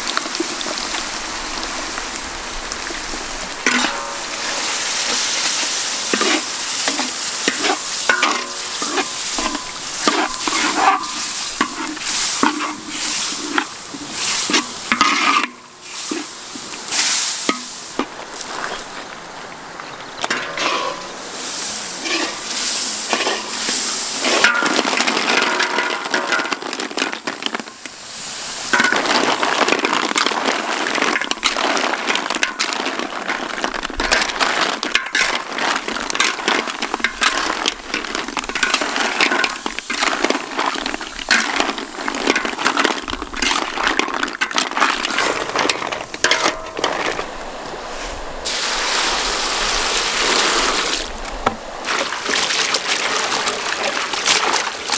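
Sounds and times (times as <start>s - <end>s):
running water: 0.0s - 54.9s
snail shells clattering in a wok: 3.6s - 15.4s, 28.7s - 47.3s.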